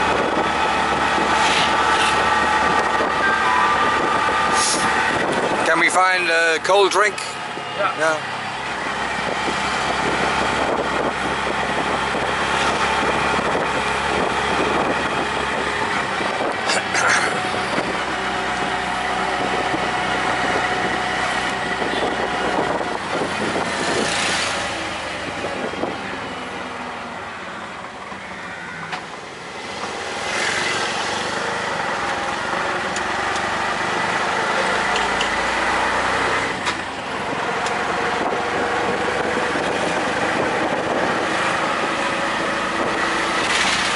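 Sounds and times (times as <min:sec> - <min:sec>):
auto-rickshaw engine running: 0:00.0 - 0:43.9
road and traffic noise: 0:00.0 - 0:43.9.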